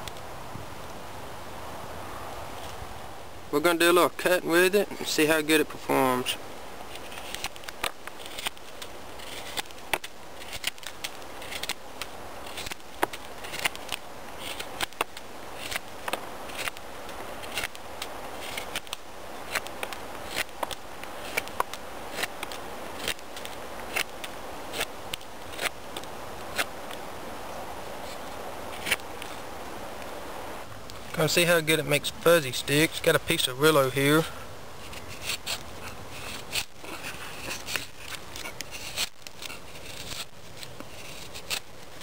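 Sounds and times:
knife shaving wood: 5.1s - 27.1s, 27.9s - 29.4s, 32.5s - 42.0s.

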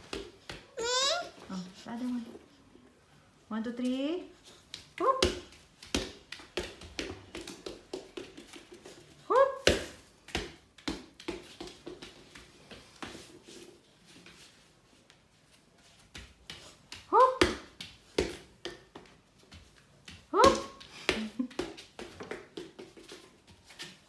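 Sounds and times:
ball bouncing on foam mat: 0.0s - 1.3s, 4.6s - 13.4s, 16.1s - 24.0s
small feet on mat: 0.0s - 2.8s, 3.7s - 24.0s
toddler crying: 0.7s - 1.4s.

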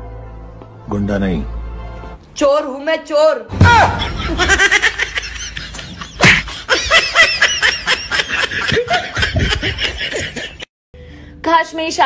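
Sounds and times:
person laughing: 3.8s - 10.7s.

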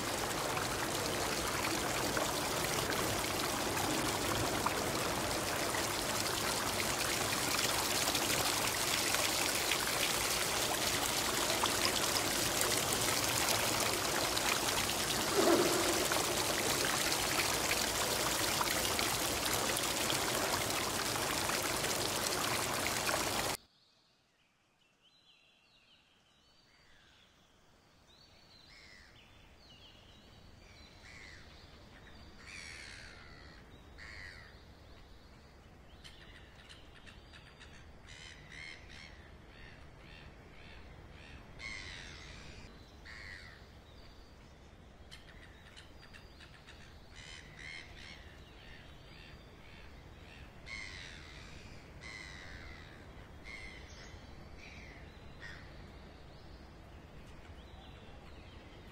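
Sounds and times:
fountain water pouring: 0.0s - 23.6s.

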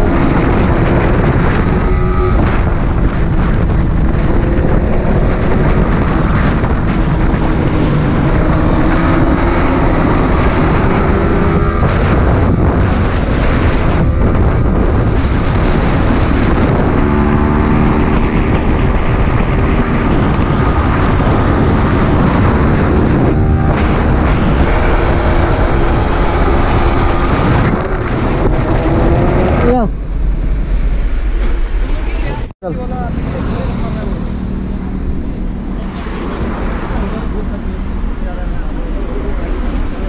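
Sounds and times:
motorcycle engine at speed: 0.0s - 31.4s
wind noise on microphone: 0.0s - 40.0s.

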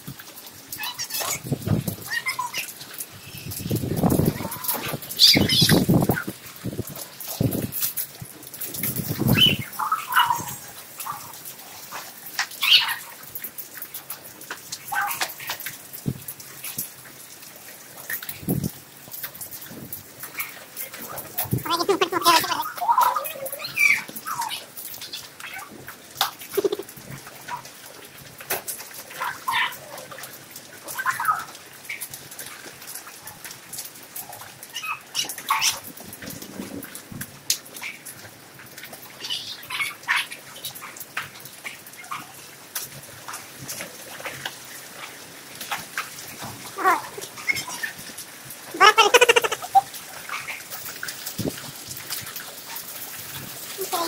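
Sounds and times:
hail and rain on a roof: 0.0s - 54.0s
cat-like meows: 21.5s - 22.7s, 46.8s - 47.4s, 48.8s - 49.9s
high animal calls: 21.6s - 22.7s, 26.5s - 26.9s, 46.8s - 47.7s, 48.7s - 50.0s.

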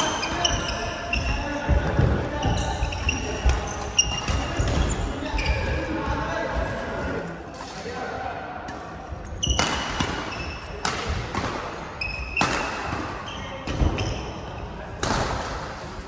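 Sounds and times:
shoes squeaking on court floor: 0.0s - 6.6s, 9.2s - 10.9s, 12.0s - 14.8s.

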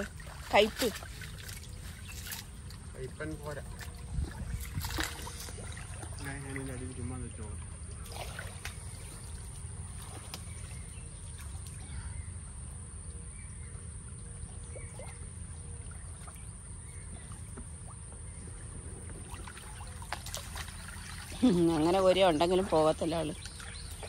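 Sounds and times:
water sloshing and lapping: 0.0s - 12.5s, 13.8s - 24.0s
steady low rumble: 8.8s - 21.4s.

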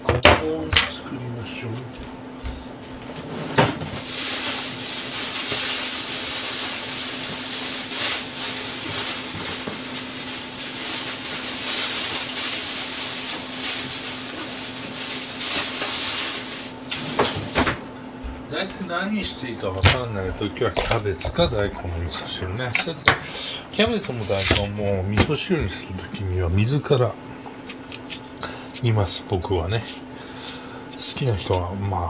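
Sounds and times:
kitchen tap running: 4.0s - 25.3s.

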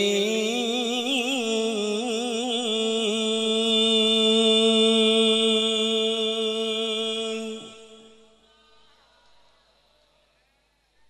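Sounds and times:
man reciting in melismatic song: 0.0s - 8.4s.

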